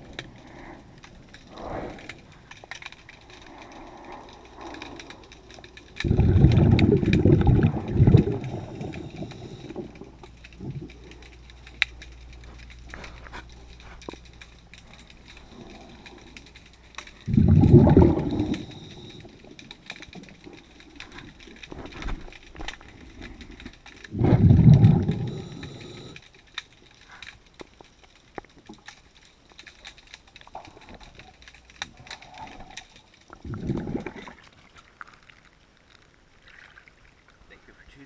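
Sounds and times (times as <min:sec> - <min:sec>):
faint clicks: 0:00.0 - 0:36.1
bubbles from diver's regulator: 0:06.0 - 0:10.0, 0:17.3 - 0:19.2, 0:24.1 - 0:26.2, 0:33.4 - 0:34.4.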